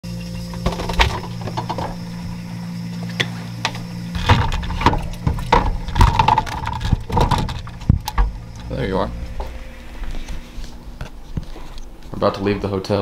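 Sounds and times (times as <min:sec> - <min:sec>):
refrigerator humming: 0:00.0 - 0:13.0
bottles clinking and rattling: 0:00.2 - 0:02.3, 0:04.1 - 0:08.8.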